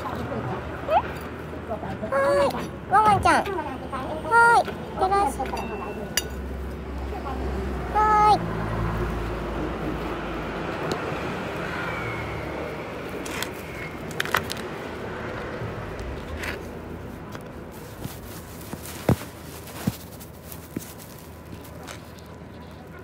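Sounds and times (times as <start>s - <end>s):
fingers scraping potting soil: 15.9s - 23.0s.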